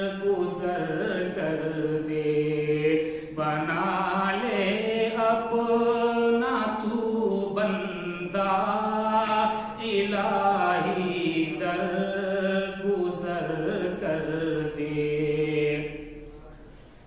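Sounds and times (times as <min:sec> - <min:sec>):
man chanting unaccompanied: 0:00.0 - 0:16.6.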